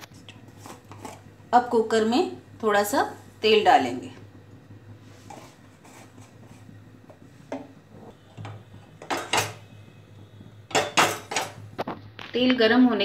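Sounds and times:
low steady hum: 0.0 - 13.0
metal cookware clinking: 8.4 - 9.7, 10.7 - 11.7.

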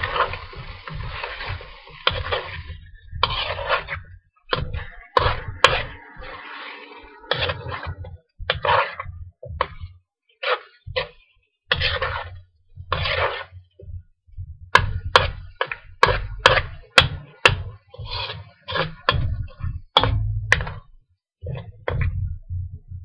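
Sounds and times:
metal spoon scraping in a wok: 0.0 - 4.0, 4.8 - 8.0, 10.4 - 12.3, 12.9 - 13.6, 17.3 - 19.6.

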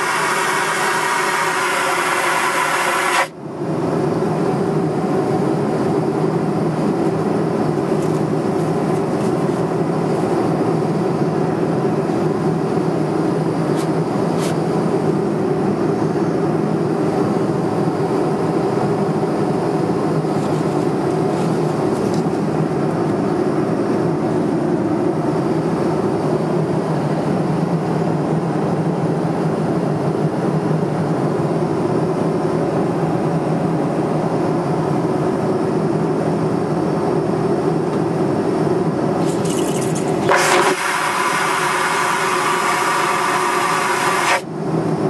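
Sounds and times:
airliner cabin engine rumble: 0.0 - 45.0.

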